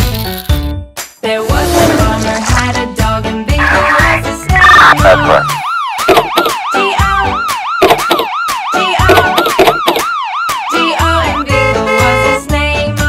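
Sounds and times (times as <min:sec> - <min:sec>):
toy electronic siren wailing: 0:03.6 - 0:10.9.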